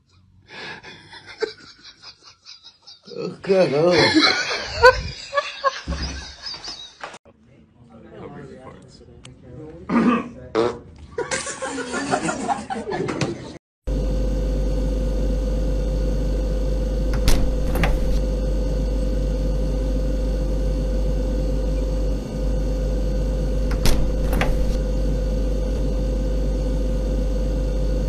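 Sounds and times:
refrigerator hum: 0:13.9 - 0:28.0.

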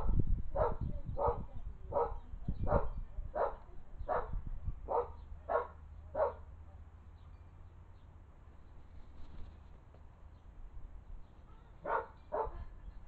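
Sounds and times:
dog barking: 0:00.6 - 0:06.4, 0:11.8 - 0:12.6.

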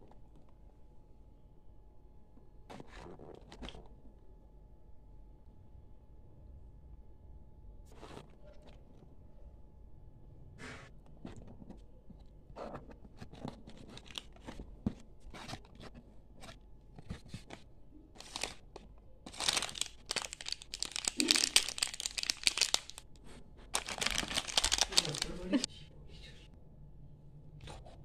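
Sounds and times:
plastic packets crinkling: 0:13.7 - 0:14.6, 0:18.2 - 0:25.7
cardboard box rustling: 0:23.8 - 0:25.4.

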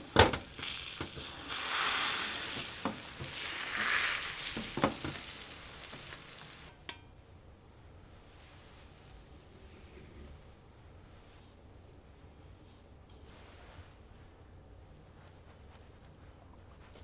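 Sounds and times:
egg sizzling in a pan: 0:00.0 - 0:06.8
chopsticks tapping a pan: 0:02.4 - 0:03.4, 0:04.4 - 0:07.1.

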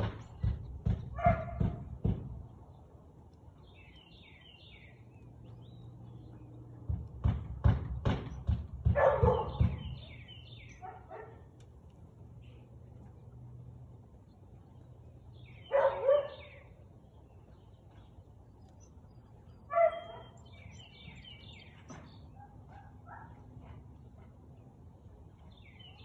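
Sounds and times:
dog barking: 0:01.1 - 0:01.8, 0:08.9 - 0:09.7, 0:10.8 - 0:11.5, 0:15.7 - 0:16.5, 0:19.7 - 0:20.4, 0:22.4 - 0:23.4.

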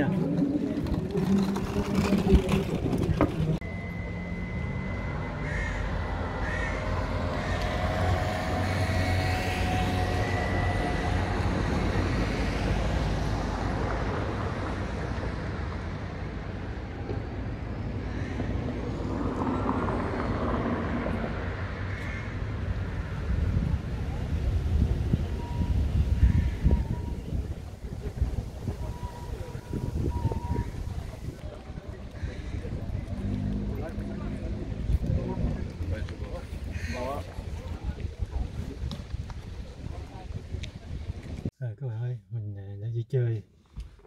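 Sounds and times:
low rumble of road traffic: 0:00.0 - 0:41.6
thin high whine: 0:03.6 - 0:13.0.

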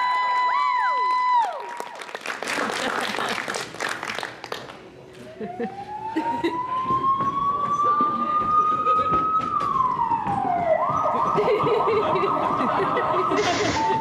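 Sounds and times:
siren wailing and yelping: 0:05.4 - 0:14.0.

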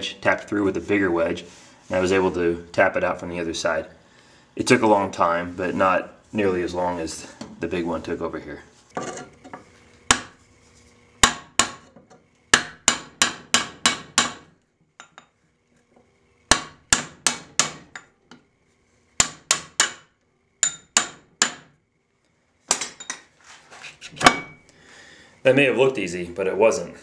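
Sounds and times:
hammer striking steel: 0:10.1 - 0:10.3, 0:12.6 - 0:15.2, 0:16.5 - 0:18.1, 0:19.2 - 0:21.7.

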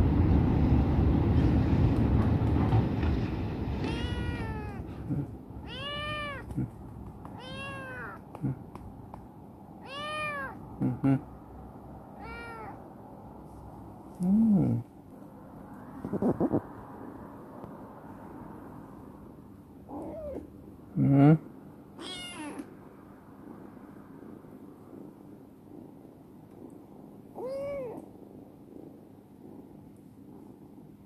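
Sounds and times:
low rumbling noise: 0:00.0 - 0:09.8, 0:10.6 - 0:21.7
kitten meowing: 0:03.8 - 0:04.9, 0:05.6 - 0:06.5, 0:07.3 - 0:08.2, 0:09.8 - 0:10.6, 0:12.2 - 0:12.8, 0:19.9 - 0:20.5, 0:22.0 - 0:22.7, 0:27.4 - 0:28.0.

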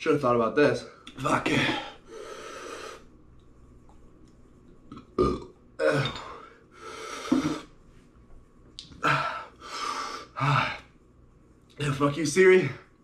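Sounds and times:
man burping: 0:04.9 - 0:06.4.

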